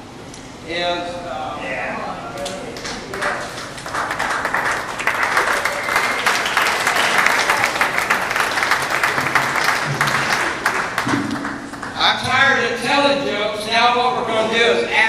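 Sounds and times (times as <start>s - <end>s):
audience applauding: 2.4s - 12.2s.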